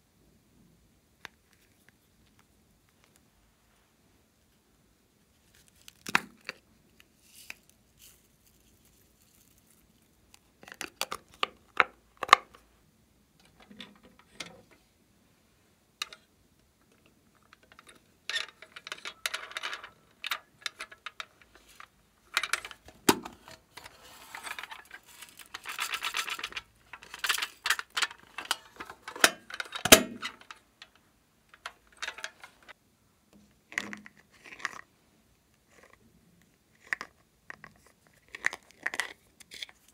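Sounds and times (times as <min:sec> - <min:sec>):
toy containers clicking: 0:17.4 - 0:32.8, 0:33.7 - 0:34.9, 0:36.7 - 0:39.9.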